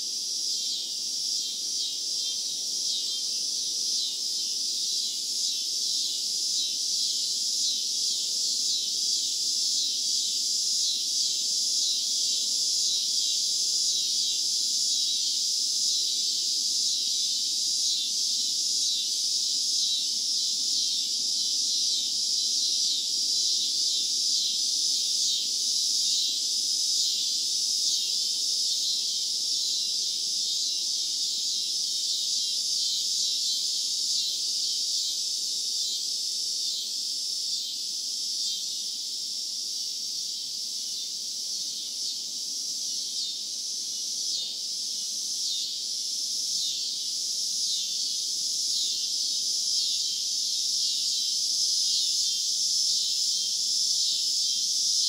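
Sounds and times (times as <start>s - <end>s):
cicadas buzzing: 0.0s - 55.0s.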